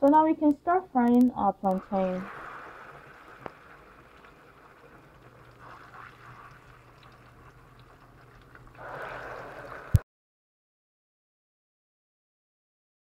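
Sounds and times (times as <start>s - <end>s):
plantain sizzling in oil: 1.7s - 6.9s
oil popping: 1.7s - 10.0s.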